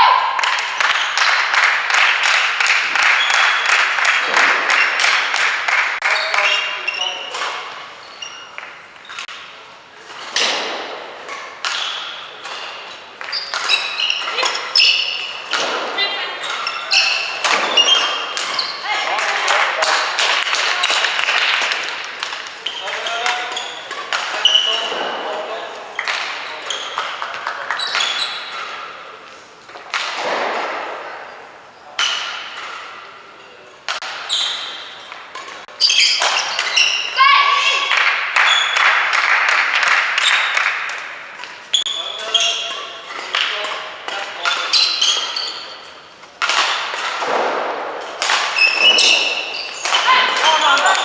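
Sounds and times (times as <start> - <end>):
shoes squeaking on court floor: 0.8 - 1.5, 2.6 - 29.8, 31.0 - 39.0, 40.2 - 51.0
rackets striking shuttlecock: 7.2 - 25.2, 33.9 - 37.2, 42.6 - 51.0.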